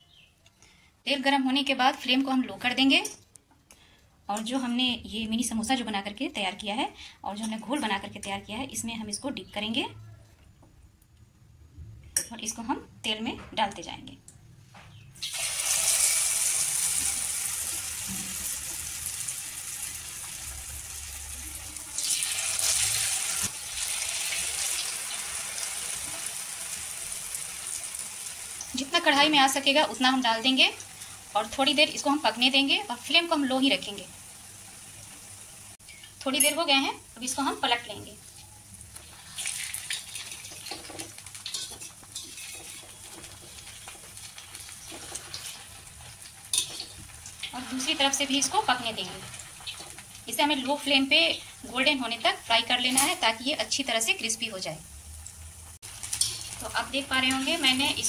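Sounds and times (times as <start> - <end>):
samosas sizzling in hot oil: 15.2 - 58.0
skimmer scraping and clinking on pan: 39.4 - 45.8, 56.0 - 56.6.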